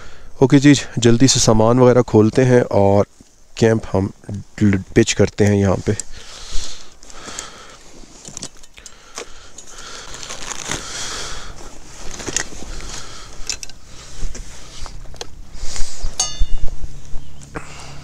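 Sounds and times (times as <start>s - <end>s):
buckles and straps clicking: 4.3s - 17.6s
bags and fabric rustling: 5.6s - 16.1s.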